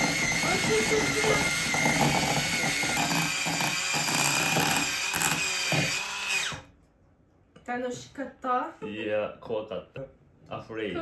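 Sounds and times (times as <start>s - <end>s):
electric mixer whining: 0.0s - 6.7s.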